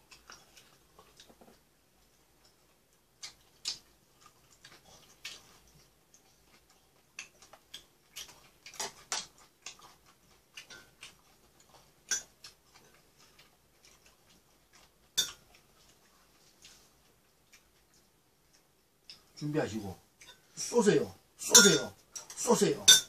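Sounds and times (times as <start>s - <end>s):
chopsticks and spoon tapping dishes: 21.4s - 23.0s.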